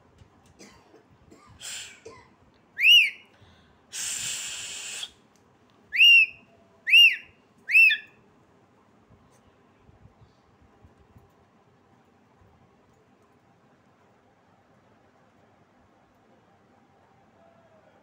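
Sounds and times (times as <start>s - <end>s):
breathy hiss: 1.6s - 2.2s, 3.4s - 5.2s
parakeet whistling: 2.8s - 3.2s, 6.0s - 8.1s.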